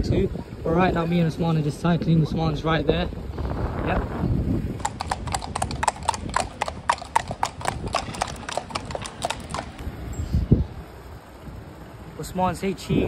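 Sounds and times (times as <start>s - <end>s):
horse hooves clip-clopping on tarmac: 4.8s - 9.9s.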